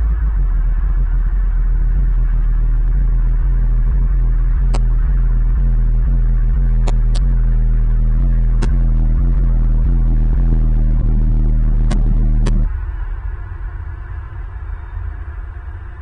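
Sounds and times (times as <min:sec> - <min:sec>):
low electrical hum: 0:00.0 - 0:16.0
sharp clicks: 0:04.6 - 0:05.0, 0:06.8 - 0:08.0, 0:08.6 - 0:09.0, 0:11.8 - 0:12.7.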